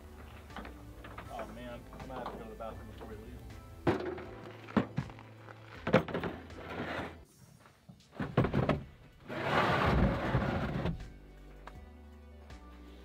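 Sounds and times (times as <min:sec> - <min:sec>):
rough scraping in truck bed: 0:04.0 - 0:07.2, 0:08.2 - 0:11.0.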